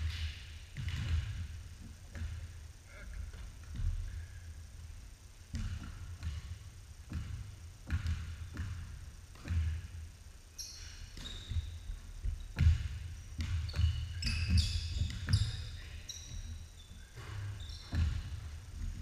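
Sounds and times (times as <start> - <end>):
basketball bouncing on wooden floor: 0.0 - 2.6, 5.5 - 10.1, 10.8 - 19.0
sneaker squeaks: 10.5 - 19.0.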